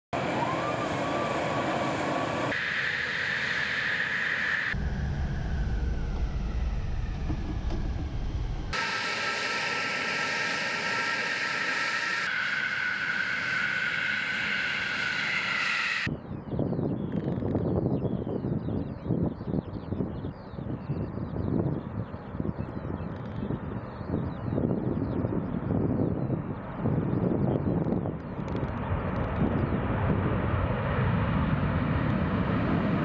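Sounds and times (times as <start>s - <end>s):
jet engines rushing with whine: 0.1s - 33.0s
low cockpit rumble: 4.7s - 12.3s.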